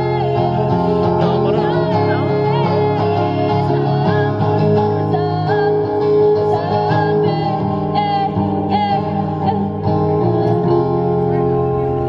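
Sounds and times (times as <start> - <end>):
woman singing into microphone: 0.0 - 11.1
strummed acoustic guitar: 0.0 - 12.0.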